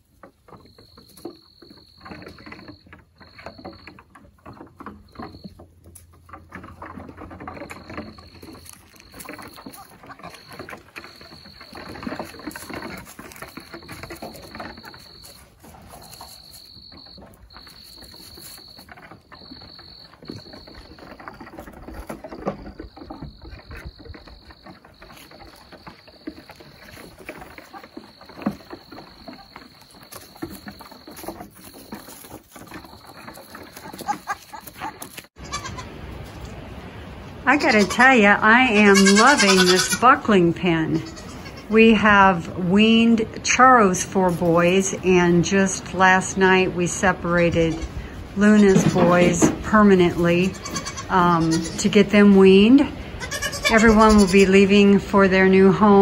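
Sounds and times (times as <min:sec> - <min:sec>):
hooves clattering on wood: 0:00.0 - 0:36.6, 0:37.4 - 0:56.0.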